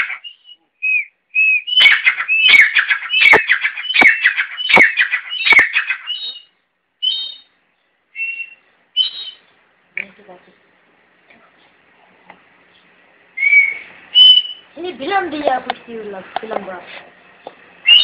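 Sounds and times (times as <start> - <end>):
francolin whistling calls: 0.0 - 9.5, 13.4 - 14.8, 17.8 - 18.0.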